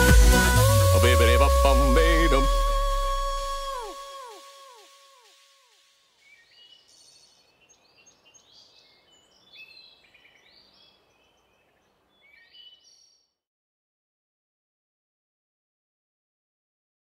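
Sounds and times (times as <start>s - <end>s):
music echo: 0.0s - 5.8s
small birds chirping: 5.7s - 13.3s.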